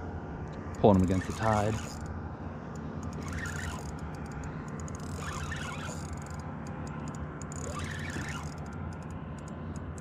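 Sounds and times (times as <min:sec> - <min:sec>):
fishing reel cranking: 0:00.9 - 0:02.1, 0:03.0 - 0:10.0
faint ticks: 0:02.7 - 0:10.0.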